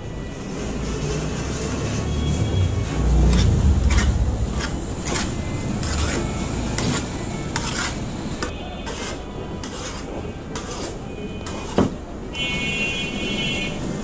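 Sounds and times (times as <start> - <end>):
hands mixing food in metal bowl: 2.8 - 11.8.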